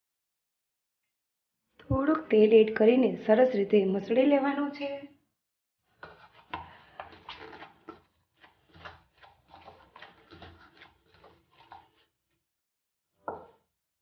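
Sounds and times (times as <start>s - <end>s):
dough kneaded by hand: 5.9s - 12.2s.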